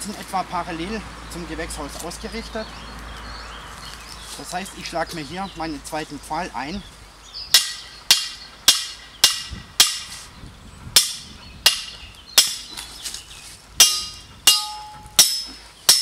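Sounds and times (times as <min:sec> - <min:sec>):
hammer striking steel stake: 0:07.5 - 0:10.1, 0:11.0 - 0:12.7, 0:13.8 - 0:16.0
metallic ring from stake: 0:13.8 - 0:16.0.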